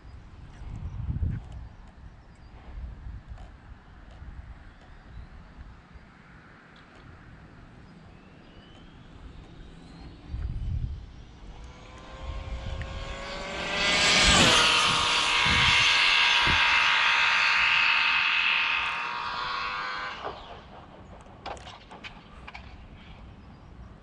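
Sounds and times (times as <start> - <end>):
electric motor whining: 8.2 - 20.8.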